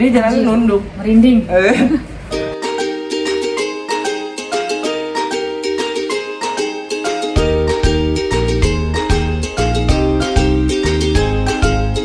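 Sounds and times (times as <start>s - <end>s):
plucked notes tune: 2.3s - 12.0s
steady bass beat: 7.4s - 12.0s.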